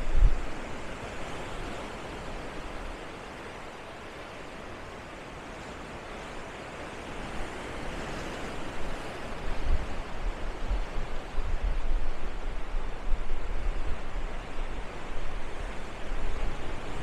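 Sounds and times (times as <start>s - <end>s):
wind buffeting microphone: 0.0s - 1.8s, 8.0s - 17.0s.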